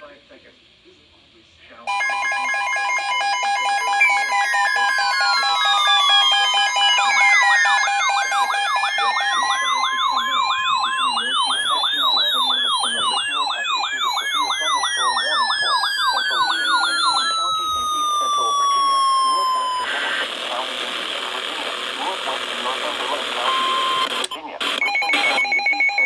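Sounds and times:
steady alert tone: 1.9s - 19.8s
alarm tones sweeping down and up: 1.9s - 20.0s
pulsed beeps: 1.9s - 20.2s, 22.9s - 26.0s
fast repeating alarm warble: 1.9s - 20.6s, 22.0s - 24.1s, 24.9s - 26.0s.

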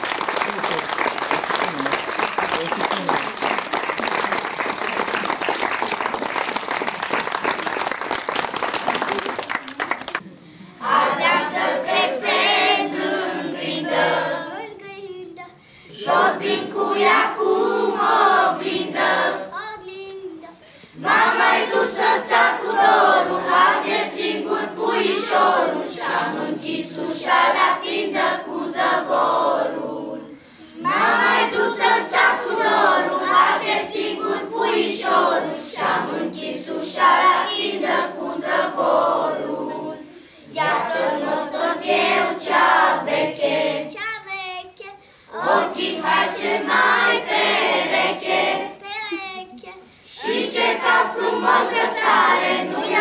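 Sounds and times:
children's choir singing: 10.8s - 14.6s, 15.9s - 19.6s, 21.0s - 44.0s, 45.3s - 48.8s, 50.0s - 53.0s.

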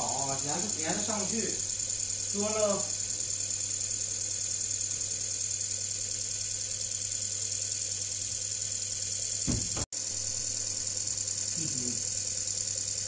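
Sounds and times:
disperser motor hum and hiss: 0.0s - 13.0s.

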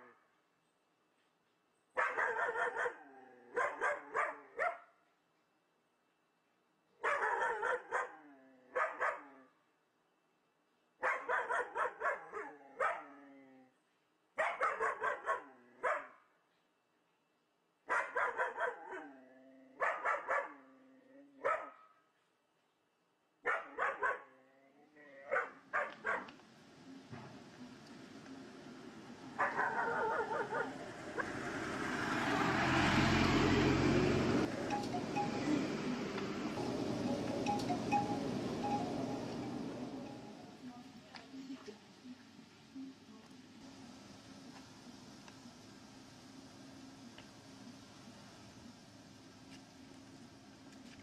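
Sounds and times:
dog barking: 2.0s - 5.0s, 7.0s - 9.5s, 11.0s - 13.2s, 14.4s - 16.3s, 17.9s - 19.2s, 19.8s - 20.7s, 21.4s - 22.0s, 23.4s - 24.4s, 25.2s - 26.3s, 29.4s - 31.4s.

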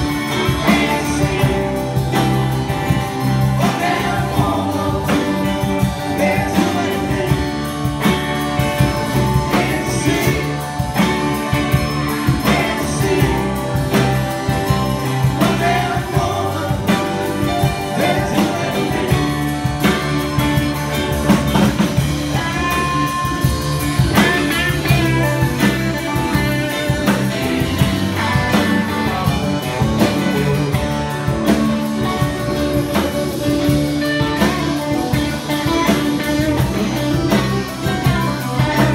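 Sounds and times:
bass guitar: 0.0s - 38.9s
drums: 0.0s - 38.9s
electric guitar: 0.0s - 38.9s
keyboard: 0.0s - 38.9s.

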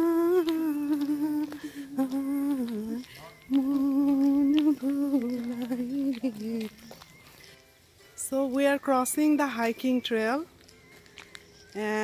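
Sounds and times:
person humming a slow melody: 0.0s - 7.4s.

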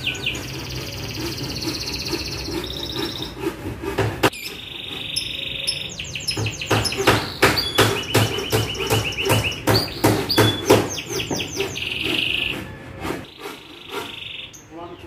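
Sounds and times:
canary singing: 0.0s - 3.6s, 4.3s - 15.0s.

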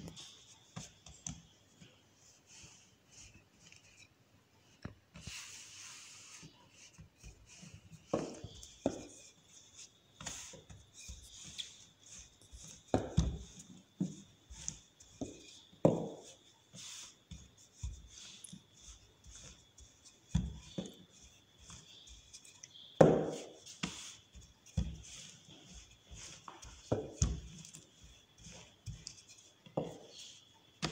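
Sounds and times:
rolling pin rubbing dough: 0.0s - 30.9s
rolling pin knocking on table: 23.0s - 23.5s.

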